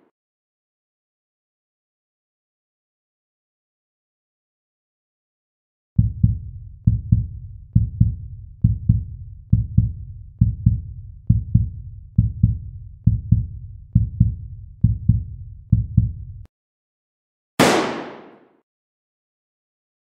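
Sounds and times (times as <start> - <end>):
heartbeat thumps: 6.0 - 16.5.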